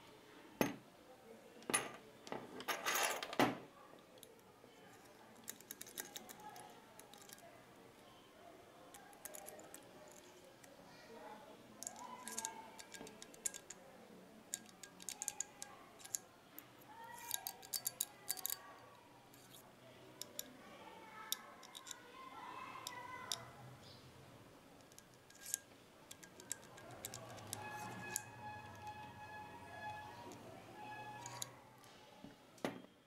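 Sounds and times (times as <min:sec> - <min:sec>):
light metal clicks and taps: 0:08.9 - 0:10.8, 0:11.8 - 0:13.8, 0:14.5 - 0:16.3, 0:21.3 - 0:22.0, 0:24.8 - 0:29.0
soft background music: 0:27.0 - 0:31.6.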